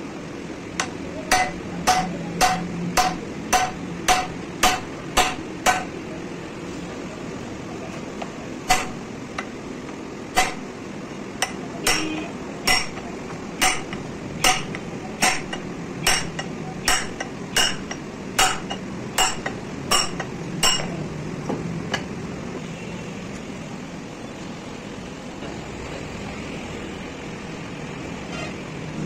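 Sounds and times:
hammer striking steel rod: 0.8s - 5.9s, 8.7s - 9.5s, 10.3s - 10.7s, 11.4s - 21.0s.

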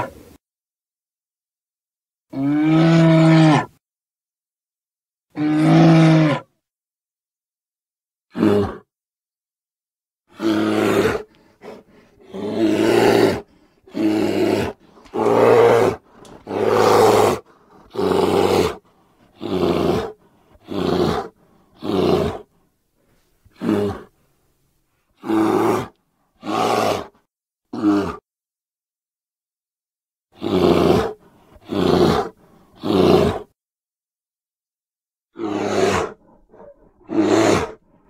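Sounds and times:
deep bear roars: 2.3s - 3.8s, 5.3s - 6.5s, 8.3s - 8.9s, 10.3s - 22.5s, 23.5s - 24.1s, 25.2s - 28.2s, 30.4s - 33.5s, 35.3s - 38.0s.

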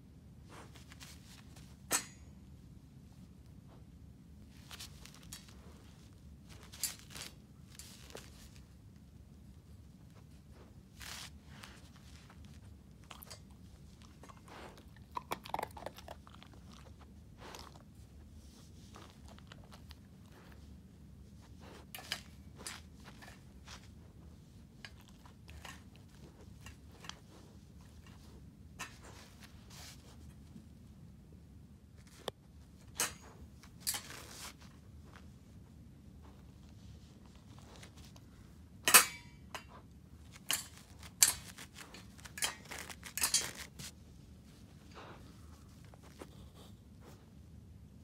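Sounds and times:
puppy crunching dry kibble: 4.5s - 20.8s, 21.4s - 30.3s.

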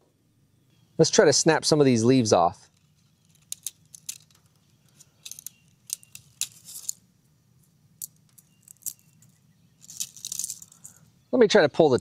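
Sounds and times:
brittle leaves snapping: 2.7s - 7.0s, 8.6s - 11.0s.

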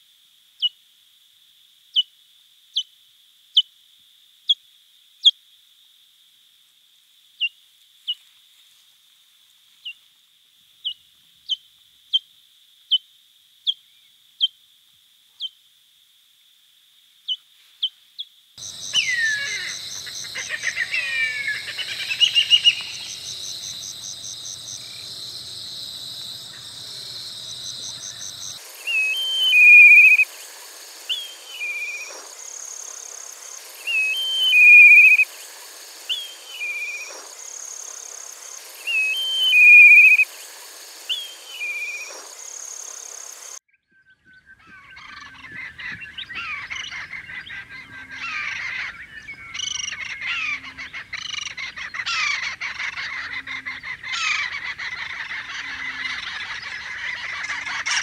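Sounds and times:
high insect drone: 18.6s - 43.6s
falcon cackling chatter: 18.7s - 25.5s, 49.8s - 58.0s
kite whistled call: 18.8s - 23.3s, 28.8s - 30.3s, 33.8s - 35.3s, 38.8s - 40.3s.

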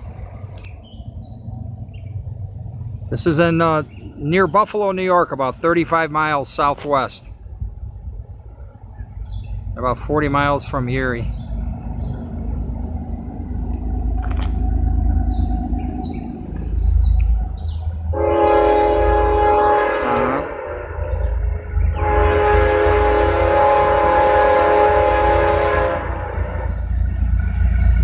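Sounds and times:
low engine rumble: 0.0s - 28.0s
locomotive air horn blasts: 18.1s - 26.9s.

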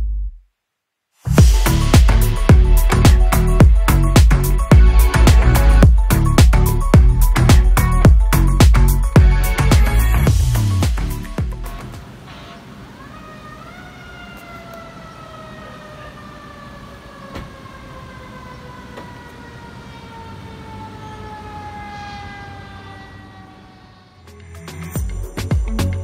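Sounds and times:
low traffic rumble: 1.3s - 24.3s
emergency vehicle siren: 1.4s - 8.3s, 12.0s - 25.0s.

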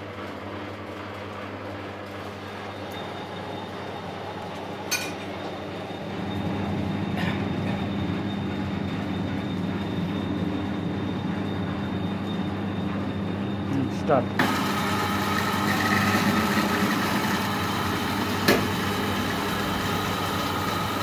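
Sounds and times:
winch gearbox humming: 1.0s - 21.0s.

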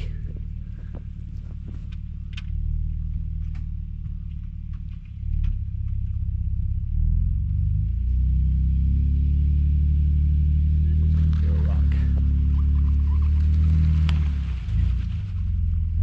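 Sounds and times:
truck engine at low revs: 0.0s - 16.0s.

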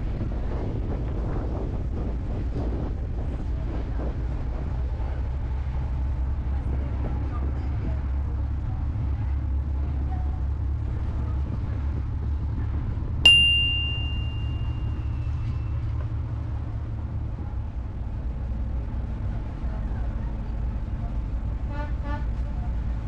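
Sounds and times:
ferry engine rumble: 0.0s - 23.0s
sharp metallic ding: 13.3s - 15.2s.

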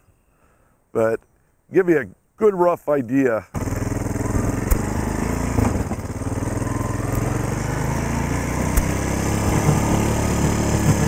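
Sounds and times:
atv engine running: 3.6s - 11.0s.

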